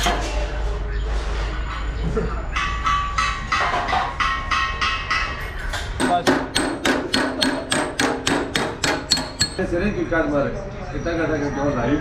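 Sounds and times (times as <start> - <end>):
hammer tapping metal plate: 2.6 - 9.7.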